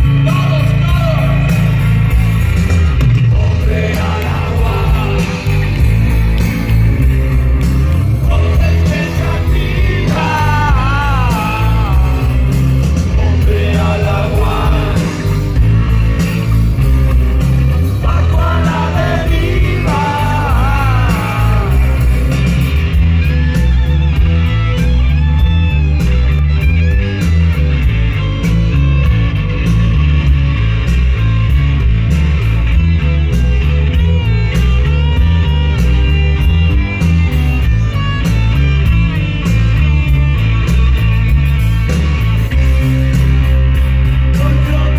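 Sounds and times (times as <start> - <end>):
live rock band playing: 0.0 - 44.9
electric guitar passage: 1.3 - 44.9
person singing: 8.2 - 12.4, 18.0 - 22.1.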